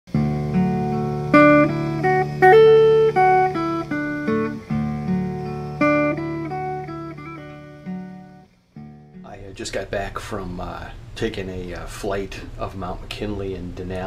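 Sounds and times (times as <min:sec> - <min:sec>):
solo guitar plucked notes: 0:00.1 - 0:09.5.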